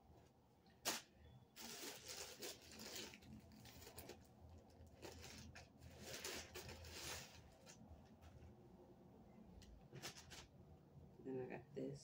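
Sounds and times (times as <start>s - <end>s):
plastic mailer bag crinkling: 1.6s - 7.8s.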